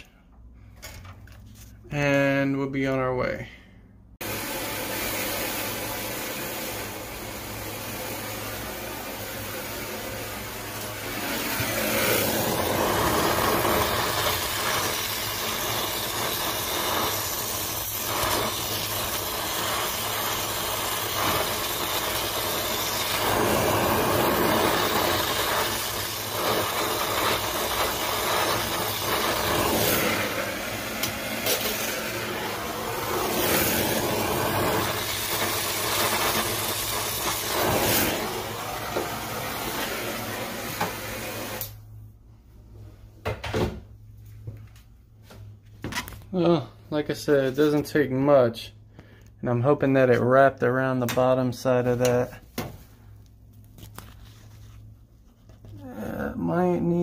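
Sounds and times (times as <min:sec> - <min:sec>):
torch flame hissing: 0:04.2 - 0:41.9.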